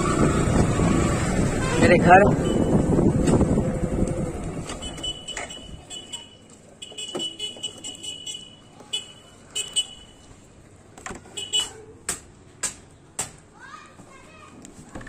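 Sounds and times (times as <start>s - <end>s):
motorcycle engine and wind: 0.0s - 5.9s.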